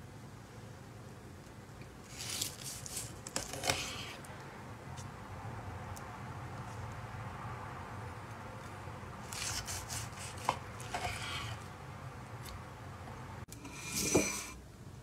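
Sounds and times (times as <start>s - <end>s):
knife scrape: 2.1s - 4.2s, 9.3s - 11.7s, 13.6s - 14.6s
knife sawing through steak: 9.3s - 11.6s.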